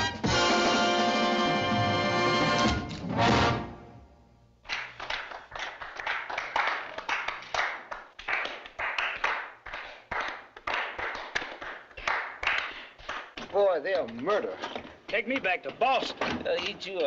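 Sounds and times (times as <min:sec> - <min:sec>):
audience applauding: 0:04.7 - 0:13.4.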